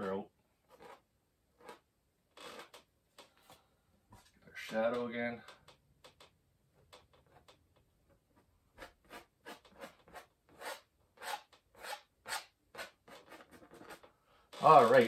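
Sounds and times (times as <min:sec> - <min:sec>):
palette knife scraping canvas: 0:00.7 - 0:01.0, 0:08.8 - 0:14.0.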